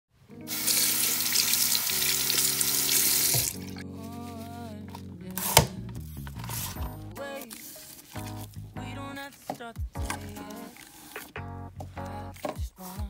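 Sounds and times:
background music: 0:00.2 - 0:13.0
water running from tap into sink: 0:00.5 - 0:03.6.

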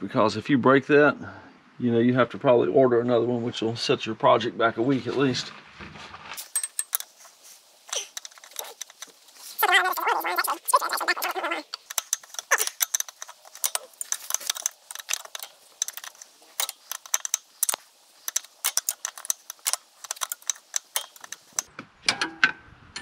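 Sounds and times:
metal tools clinking on fittings: 0:06.4 - 0:21.7.

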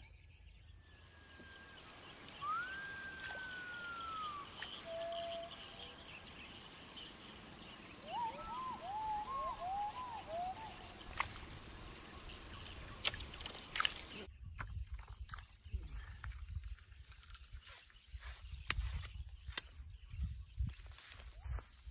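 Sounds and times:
insects buzzing: 0:00.9 - 0:14.3
bird whistling: 0:01.5 - 0:05.7, 0:08.0 - 0:10.9.

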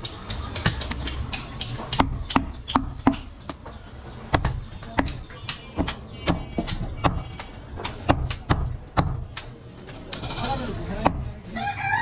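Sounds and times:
cleaver chopping on wooden block: 0:00.0 - 0:03.6, 0:04.3 - 0:09.5.

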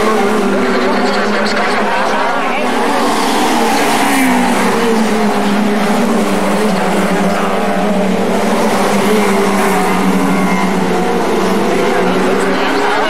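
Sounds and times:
race car engines: 0:00.0 - 0:13.0.

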